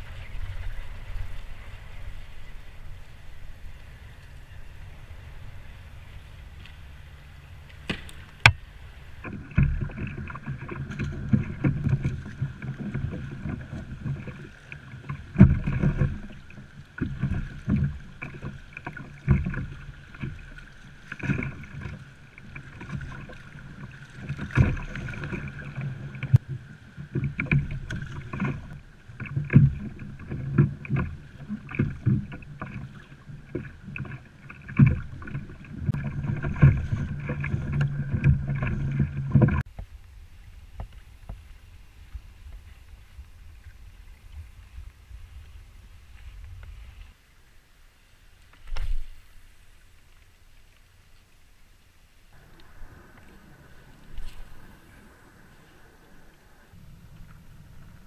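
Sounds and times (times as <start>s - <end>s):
rushing water: 0.0s - 58.0s
wind: 0.0s - 58.0s
water slapping against kayak hull: 7.6s - 43.9s, 48.5s - 49.5s.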